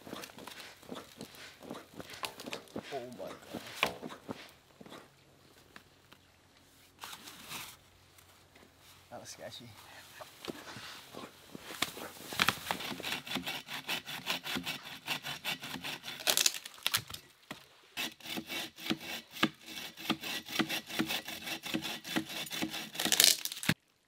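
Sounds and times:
bow saw cutting a log: 0.0s - 5.1s, 12.4s - 16.7s, 18.0s - 23.8s.

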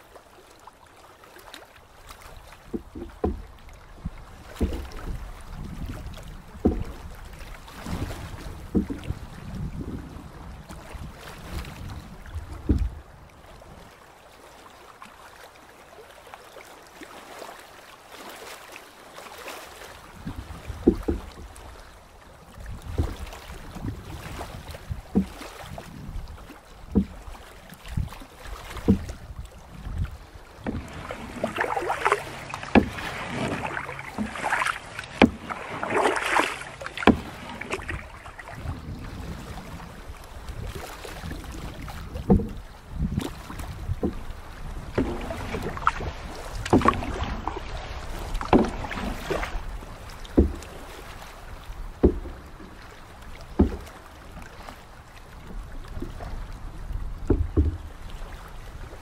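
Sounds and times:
paddle strokes splashing: 0.0s - 59.0s
water around the hull: 0.0s - 59.0s
light wind: 19.4s - 59.0s.

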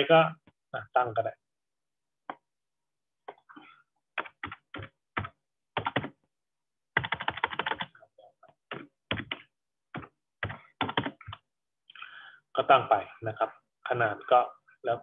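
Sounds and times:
typing on computer keyboard: 4.2s - 6.2s, 7.0s - 7.9s, 8.7s - 11.4s.

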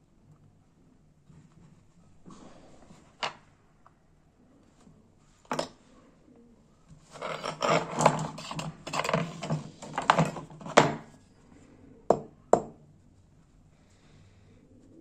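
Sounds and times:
hand tools knocking and rattling: 7.1s - 11.1s.

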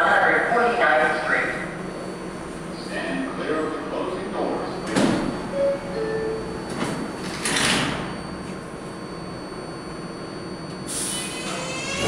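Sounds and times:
sliding doors closing: 10.9s - 12.0s.

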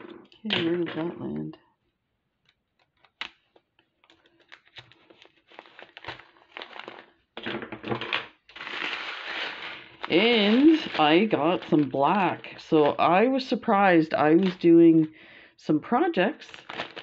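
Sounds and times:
plastic bag crinkling: 2.8s - 15.2s, 16.4s - 17.0s
beads shifting and clicking: 8.0s - 13.1s, 14.2s - 15.1s.

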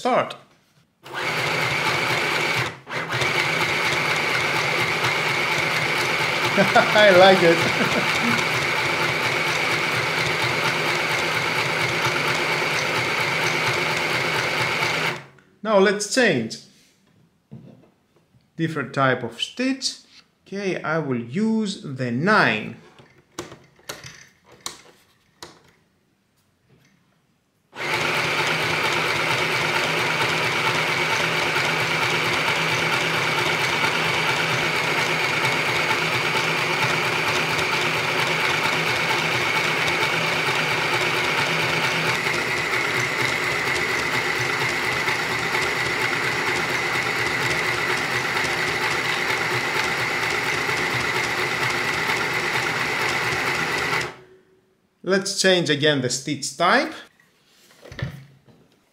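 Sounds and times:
sewing machine motor whining: 1.0s - 15.3s, 27.8s - 54.2s.

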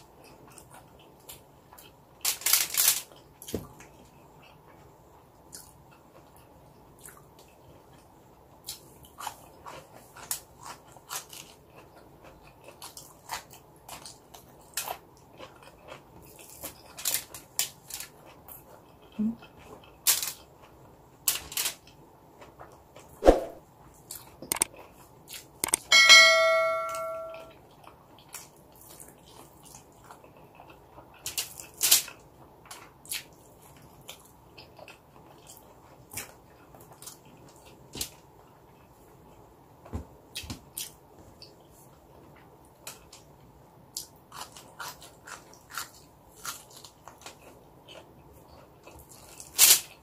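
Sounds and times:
fingers crinkling foil: 2.2s - 3.2s
person chewing: 5.5s - 20.8s, 24.0s - 25.8s, 27.7s - 37.8s, 43.9s - 49.6s
bell-like ding: 25.8s - 27.5s.

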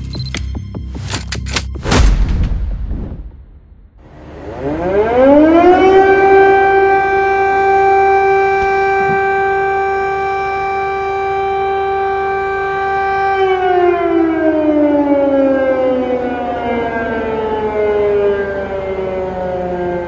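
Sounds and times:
air raid siren: 4.0s - 20.0s.

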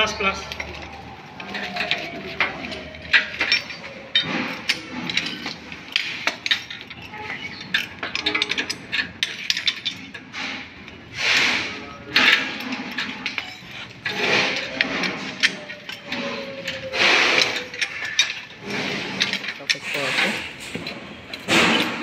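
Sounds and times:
metal parts clicking and clinking: 0.0s - 22.0s.

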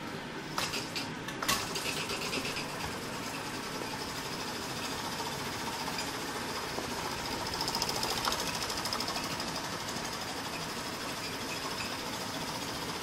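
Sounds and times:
toy steam engine chuffing: 6.6s - 12.1s.

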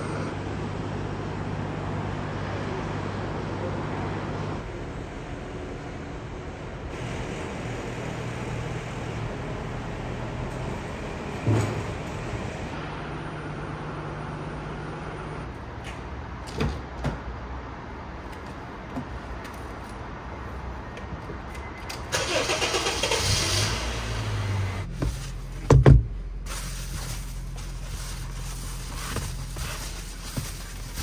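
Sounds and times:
car engine starting and idling: 21.9s - 31.0s.

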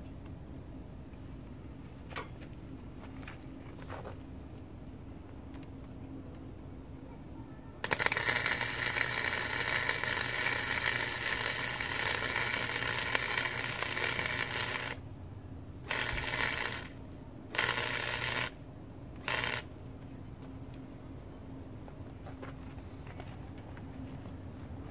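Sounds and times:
welder arc crackling: 7.8s - 15.0s, 15.9s - 18.6s, 19.2s - 19.7s.

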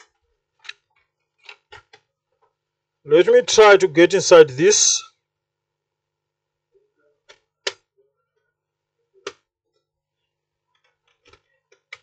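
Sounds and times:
plastic clicks and knocks: 0.0s - 2.6s, 10.7s - 12.0s.

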